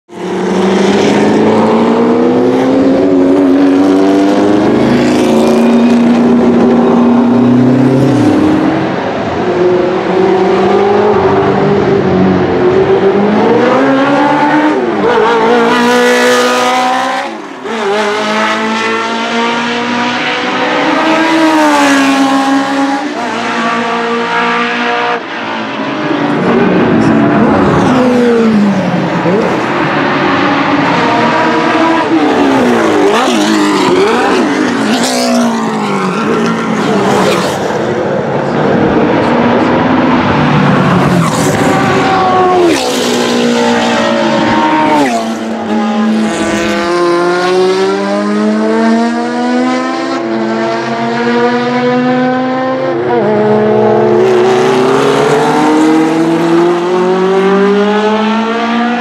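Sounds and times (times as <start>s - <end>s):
other race cars: 0.1s - 59.0s
racing engine passing: 0.1s - 59.0s.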